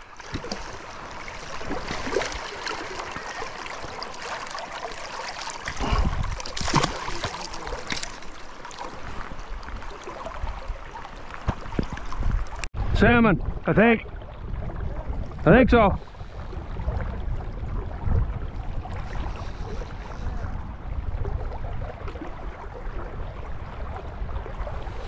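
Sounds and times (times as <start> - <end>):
fish thrashing splashes: 0.0 - 12.2
river water rushing: 0.0 - 12.6
heavy low rumble and splashing: 0.0 - 25.0.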